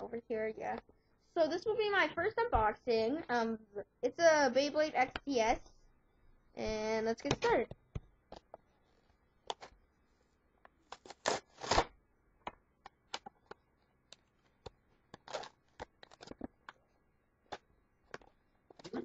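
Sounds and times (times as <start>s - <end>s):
blister pack being torn open: 10.9s - 12.0s, 15.1s - 16.5s.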